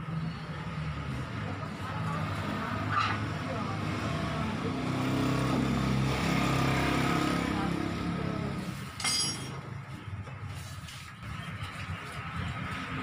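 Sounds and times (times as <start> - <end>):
metallic clink: 9.0 - 9.7.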